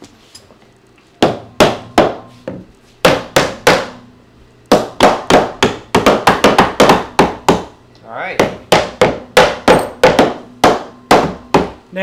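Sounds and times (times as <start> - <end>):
rubber mallet knocking wood: 1.2 - 4.0, 4.7 - 7.7, 8.4 - 11.8.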